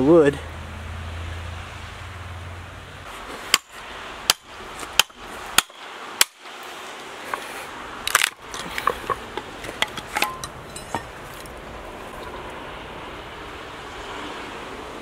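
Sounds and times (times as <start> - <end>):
wood cracking and splintering: 8.0 - 10.3.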